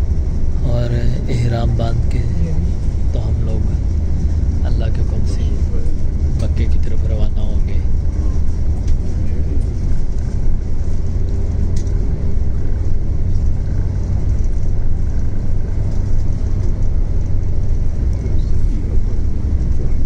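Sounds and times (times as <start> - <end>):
vehicle engine and tyre rumble: 0.0 - 20.0.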